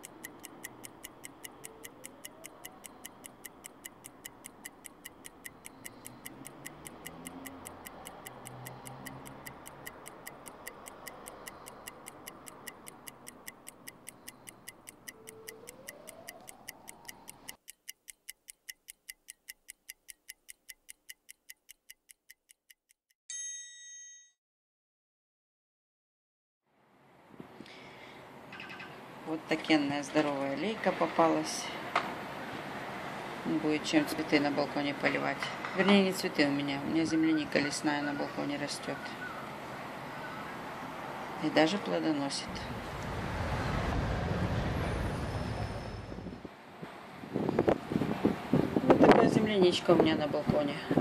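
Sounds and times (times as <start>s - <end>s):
clock ticking: 0.0s - 23.2s
bright ding: 23.3s - 24.4s.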